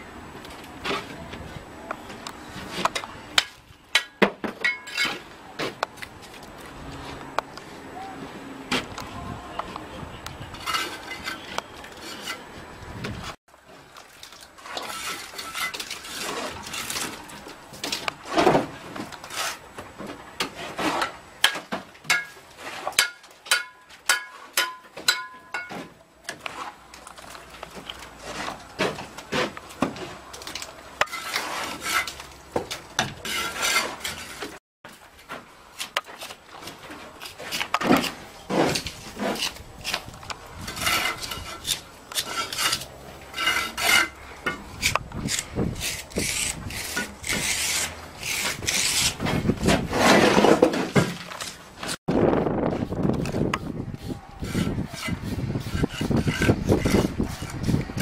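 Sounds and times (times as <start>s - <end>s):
brick hammer striking bricks: 21.0s - 26.4s.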